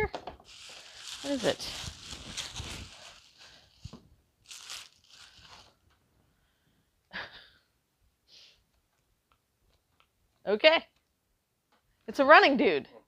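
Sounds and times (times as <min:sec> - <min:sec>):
packing material crunching and rustling: 0:00.4 - 0:05.8.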